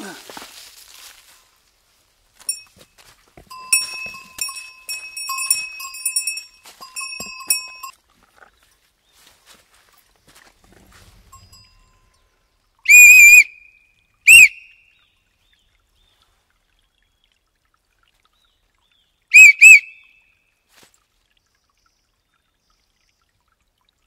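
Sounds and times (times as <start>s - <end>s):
shrill whistle blasts: 12.9s - 13.7s, 14.3s - 14.7s, 19.3s - 20.0s.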